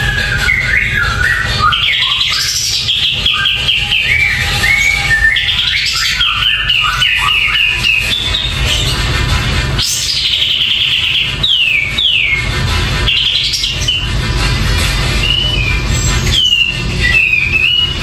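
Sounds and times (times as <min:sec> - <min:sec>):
bulbul singing: 0:00.0 - 0:09.1, 0:09.8 - 0:14.2, 0:15.0 - 0:18.0
steady low rumble: 0:06.6 - 0:10.4, 0:11.9 - 0:18.0.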